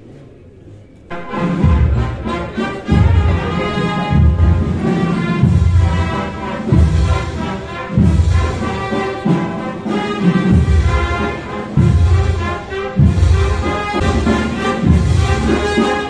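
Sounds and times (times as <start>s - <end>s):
brass band march: 1.1s - 16.0s
heavy drum beat: 1.2s - 16.0s.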